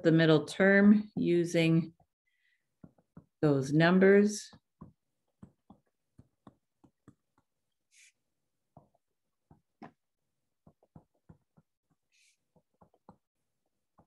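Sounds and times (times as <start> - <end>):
stylus tapping on tablet screen: 2.7 - 14.0.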